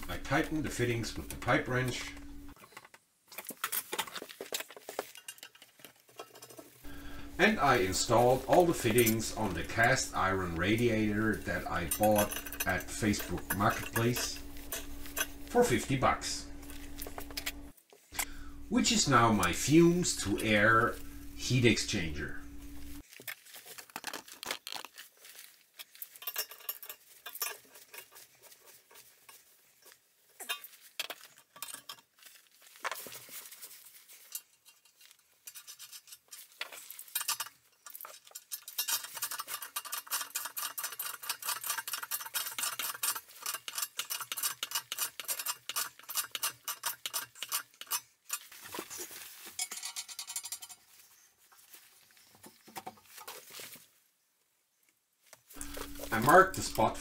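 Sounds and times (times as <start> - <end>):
metal fittings clinking and clicking: 7.6 - 16.0, 25.8 - 28.2, 34.2 - 48.4, 49.6 - 50.9.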